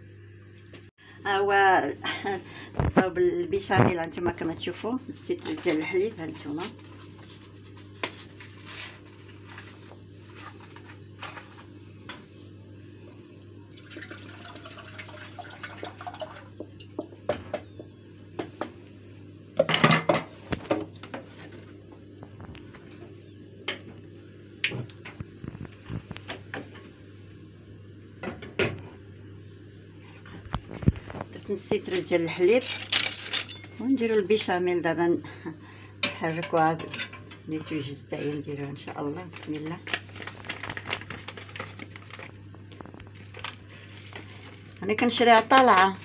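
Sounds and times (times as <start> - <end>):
steady low hum: 0.0 - 46.0
milk pouring into saucepan: 13.7 - 16.5.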